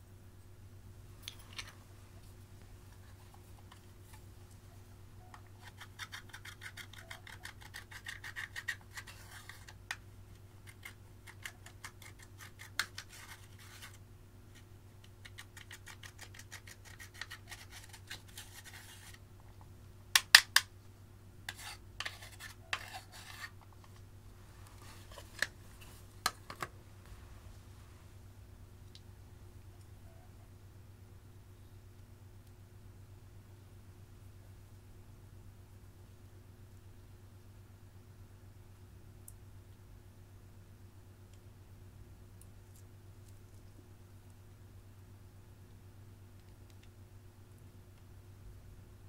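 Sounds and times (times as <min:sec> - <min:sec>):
stick scratching eyeshadow: 0:05.2 - 0:09.8, 0:10.6 - 0:14.0, 0:14.6 - 0:19.2, 0:21.5 - 0:23.6.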